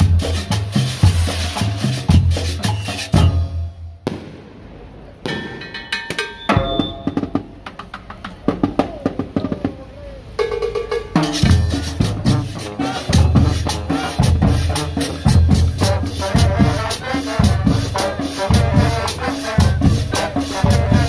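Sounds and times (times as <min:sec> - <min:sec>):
marching drum line: 0:00.0 - 0:21.0
sustained horn notes: 0:12.0 - 0:21.0.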